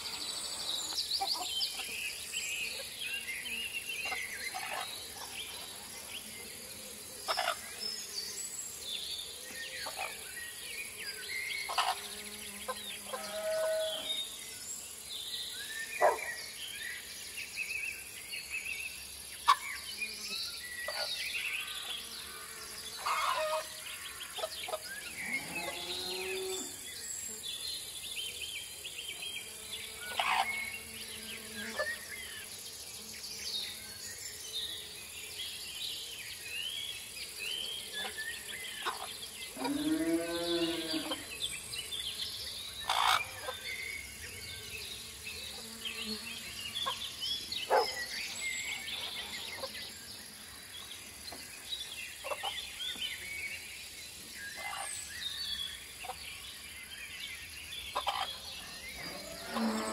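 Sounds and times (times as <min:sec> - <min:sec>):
high insect drone: 0:00.0 - 0:09.0
birds chirping: 0:15.9 - 0:16.6, 0:19.0 - 0:28.8, 0:37.2 - 0:56.8.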